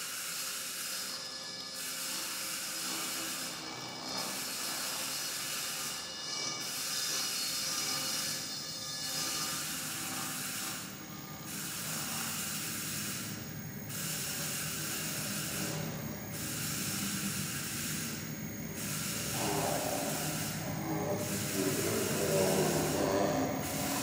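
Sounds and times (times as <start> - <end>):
steady electronic hiss: 9.4 - 24.0.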